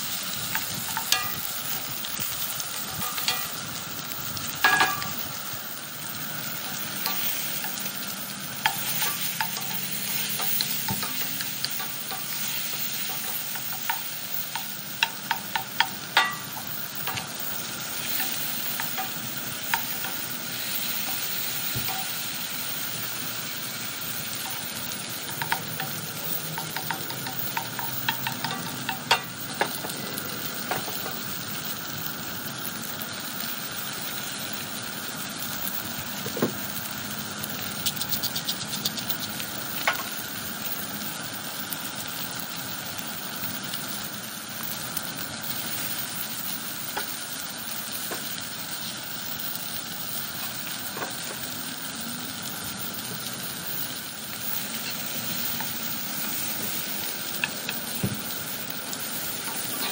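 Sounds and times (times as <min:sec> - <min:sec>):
food sizzling in skillet: 0:00.0 - 0:59.9
spoon clicking against pan: 0:25.3 - 0:29.9.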